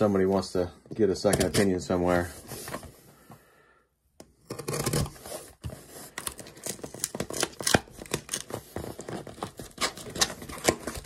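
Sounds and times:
packing tape ripping: 6.1 - 11.0.

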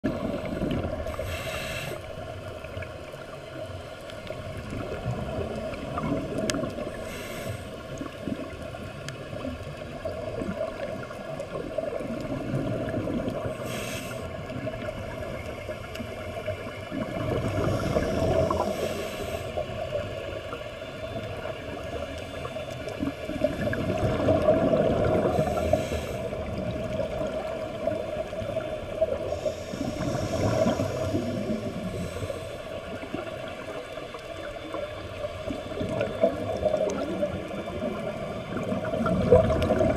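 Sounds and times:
regulator inhalation hiss: 0.2 - 2.4, 6.9 - 7.9, 13.6 - 14.5, 17.6 - 19.8, 25.3 - 26.5, 29.2 - 33.0.

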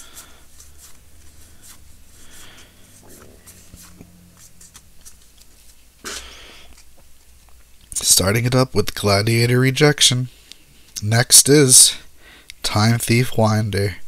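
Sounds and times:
faint low hum: 0.0 - 12.4
cards and foil pack rustling: 3.5 - 7.5.

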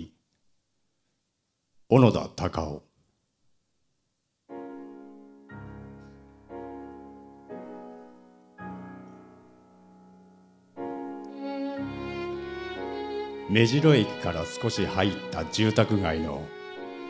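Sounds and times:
slow piano chords: 4.5 - 17.0.

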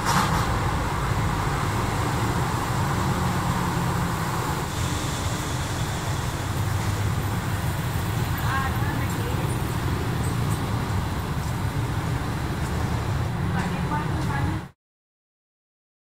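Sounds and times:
hiss: 4.2 - 7.9.

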